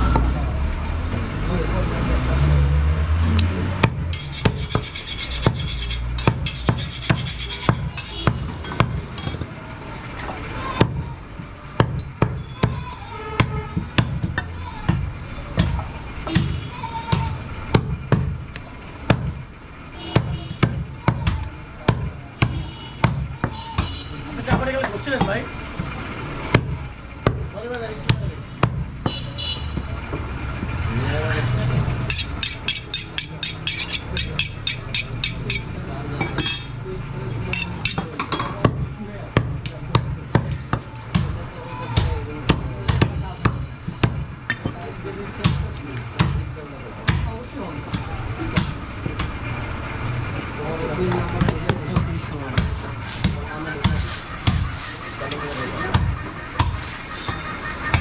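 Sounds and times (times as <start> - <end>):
cleaver chopping on wooden block: 3.4 - 9.0
knife strokes on sharpening steel: 4.1 - 8.1, 32.1 - 35.7.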